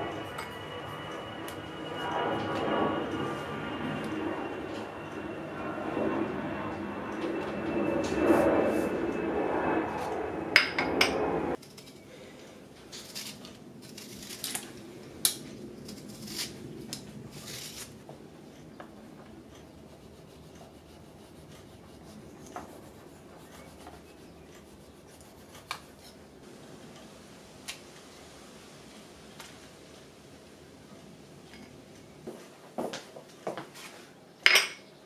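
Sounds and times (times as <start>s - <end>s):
loud steady rushing noise: 0.0s - 11.6s
knife scraping citrus peel: 13.0s - 18.0s.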